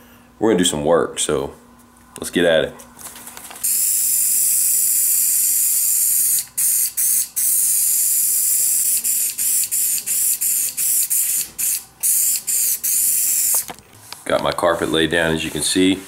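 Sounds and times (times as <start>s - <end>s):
aerosol spray hissing: 3.6s - 13.7s.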